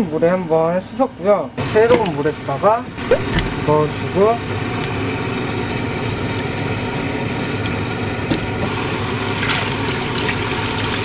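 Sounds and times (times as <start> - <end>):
water pouring into a pan: 8.7 - 11.0.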